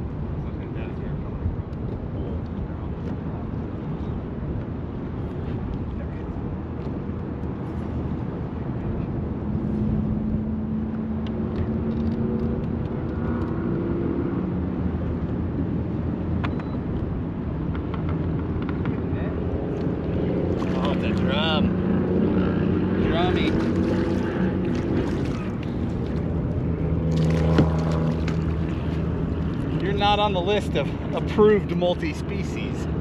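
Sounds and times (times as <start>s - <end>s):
wind rumble on microphone: 0.0s - 33.0s
open water: 16.0s - 33.0s.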